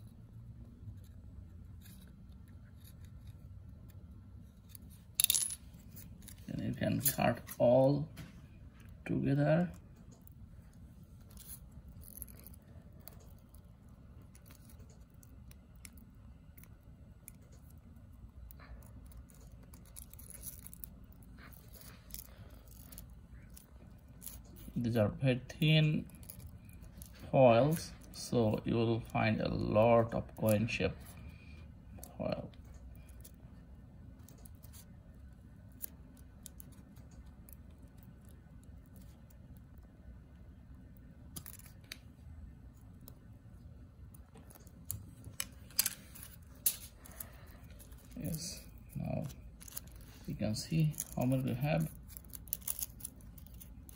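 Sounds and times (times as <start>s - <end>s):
scissors snipping foil: 49.2s - 53.9s.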